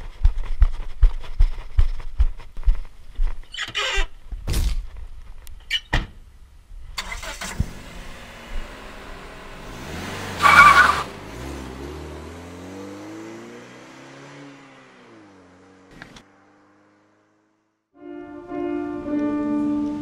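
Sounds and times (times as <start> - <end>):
car engine rising and falling: 7.0 - 17.9.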